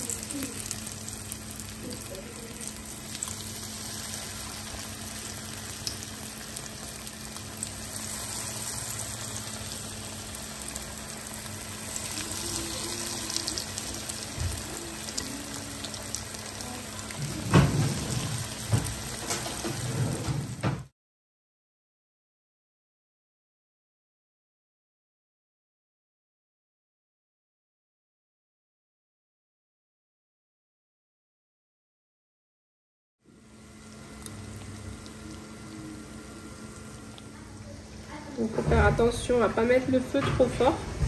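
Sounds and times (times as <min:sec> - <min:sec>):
chicken sizzling in hot oil: 0:00.0 - 0:20.8, 0:33.3 - 0:41.0.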